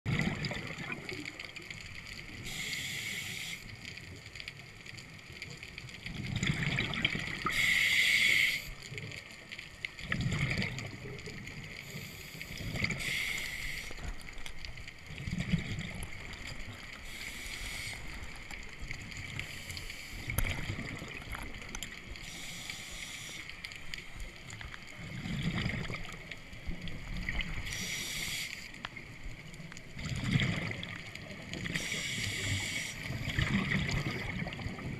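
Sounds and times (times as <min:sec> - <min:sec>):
rumble of exhaled bubbles: 0:00.1 - 0:02.4, 0:05.9 - 0:07.7, 0:09.0 - 0:13.2, 0:13.9 - 0:17.2, 0:18.0 - 0:22.2, 0:23.8 - 0:27.8, 0:28.9 - 0:34.9
diver inhaling through regulator: 0:02.4 - 0:03.7, 0:07.4 - 0:08.8, 0:11.9 - 0:14.1, 0:17.0 - 0:18.3, 0:27.7 - 0:28.7, 0:31.7 - 0:33.2.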